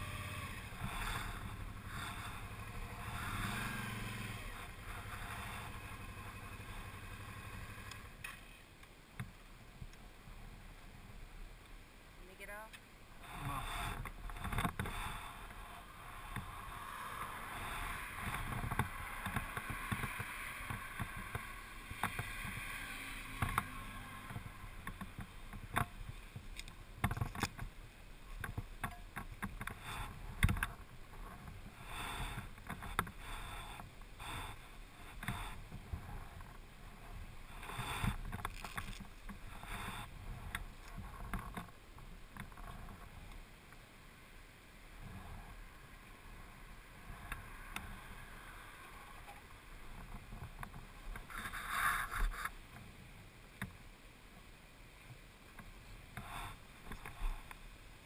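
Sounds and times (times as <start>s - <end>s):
motorcycle running: 0.0s - 8.7s, 13.2s - 27.7s, 28.3s - 43.2s.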